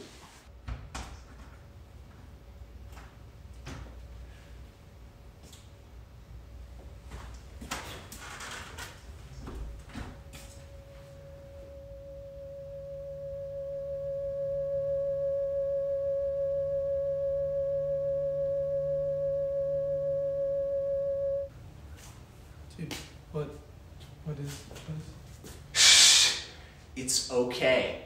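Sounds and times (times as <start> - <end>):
faint low hum: 9.0 - 23.7
steady electronic tone: 9.7 - 21.5.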